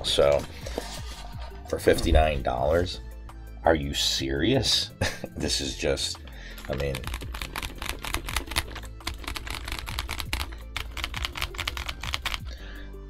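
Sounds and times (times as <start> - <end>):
background music: 0.0 - 13.0
fast keyboard typing clacks: 6.6 - 12.5.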